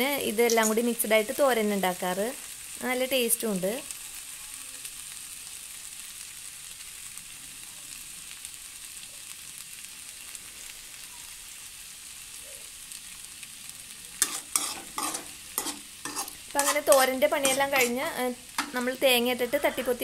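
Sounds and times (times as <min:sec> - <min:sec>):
vegetables sizzling in a pan: 0:00.0 - 0:20.0
spatula scraping a pan: 0:14.2 - 0:20.0.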